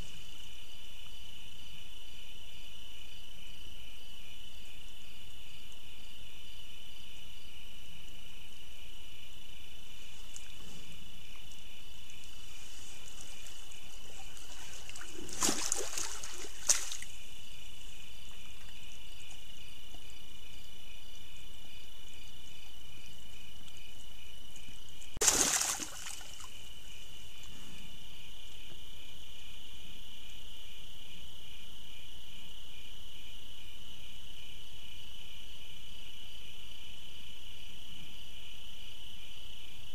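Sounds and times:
night insects chorus: 0:00.0 - 0:39.9
bear splashing in water: 0:12.8 - 0:17.1, 0:25.2 - 0:26.6.

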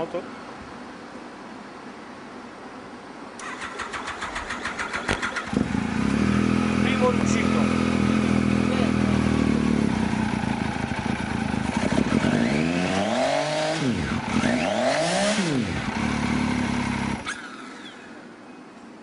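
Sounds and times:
motorcycle engine idling and revving: 0:03.5 - 0:18.1.

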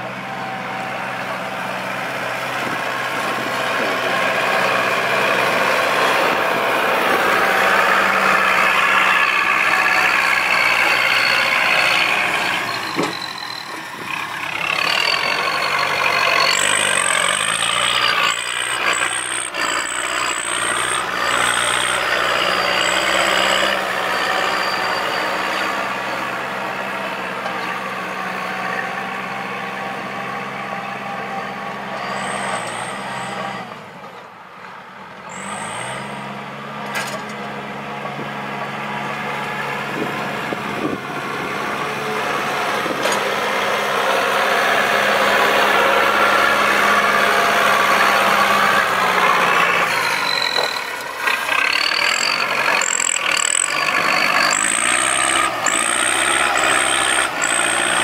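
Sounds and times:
tractor diesel engine under load: 0:00.0 - 0:58.0
short high squeals: 0:07.6 - 0:26.2, 0:31.9 - 0:33.9, 0:35.3 - 0:36.5, 0:48.1 - 0:58.0.

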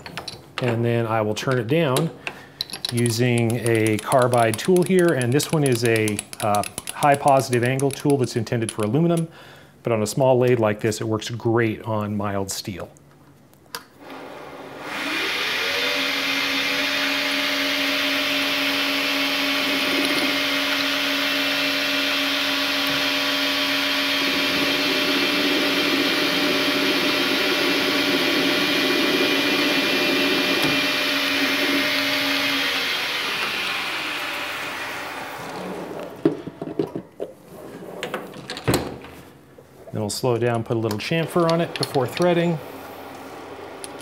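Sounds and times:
metal lathe motor whine: 0:14.1 - 0:36.2.

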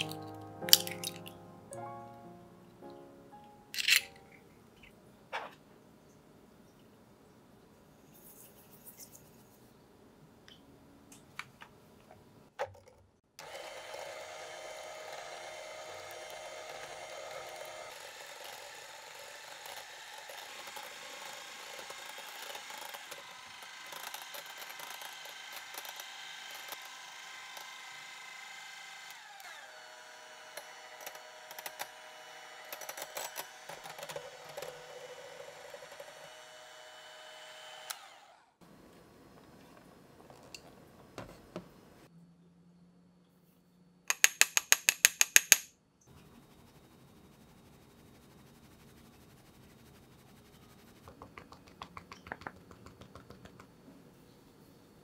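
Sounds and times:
electric hand mixer whining: 0:13.4 - 0:38.6.

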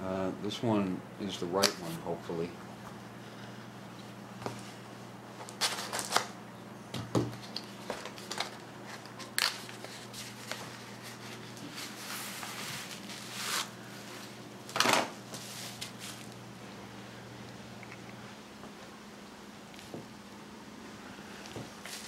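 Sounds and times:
bubble wrap crinkling: 0:07.4 - 0:16.4.

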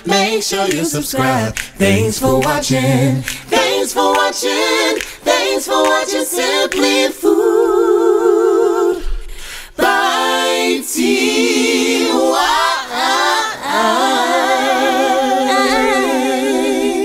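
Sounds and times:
voices singing in harmony: 0:00.0 - 0:17.0.

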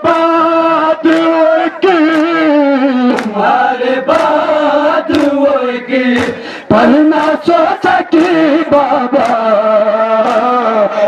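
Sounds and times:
men chanting in unison: 0:00.0 - 0:11.0
chest-beating slaps: 0:03.1 - 0:03.4, 0:05.1 - 0:05.4, 0:06.1 - 0:06.4, 0:10.2 - 0:10.5.

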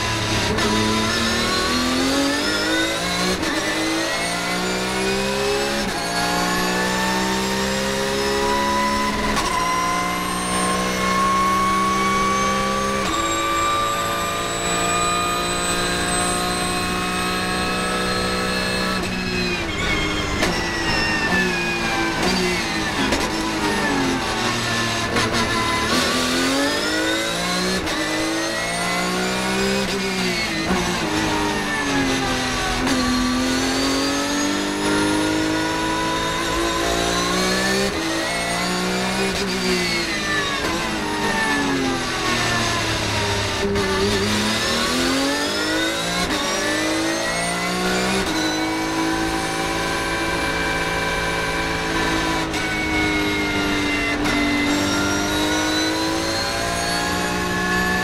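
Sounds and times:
race car engine accelerating: 0:00.0 - 0:58.0.

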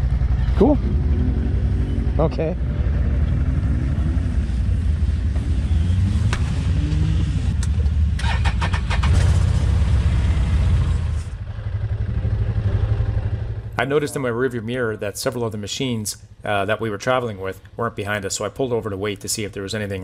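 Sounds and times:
engines running low: 0:00.0 - 0:18.2
engine cranking and clicks: 0:06.3 - 0:09.6.

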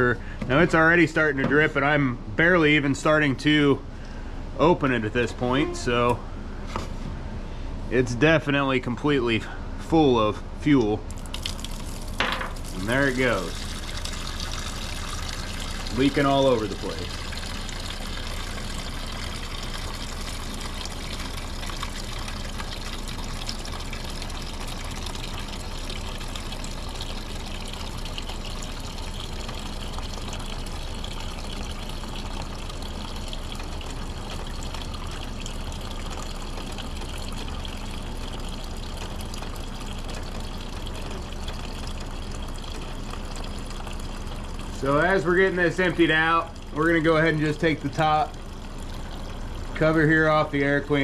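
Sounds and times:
liquid pouring into plastic pan: 0:11.0 - 0:51.0.

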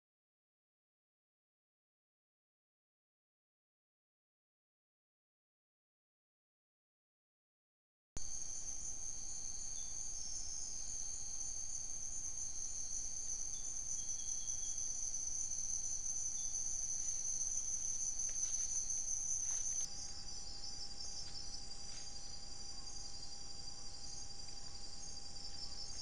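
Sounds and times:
insect chorus trilling: 0:08.2 - 0:26.0.

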